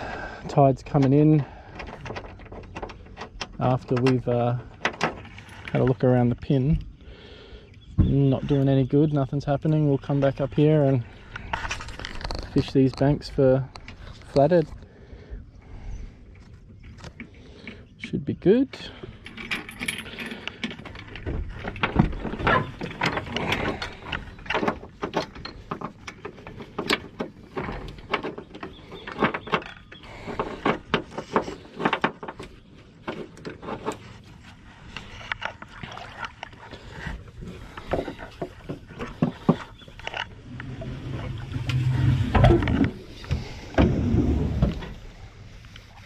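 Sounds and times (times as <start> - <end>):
metal fittings clinking and rattling: 19.1 - 32.0.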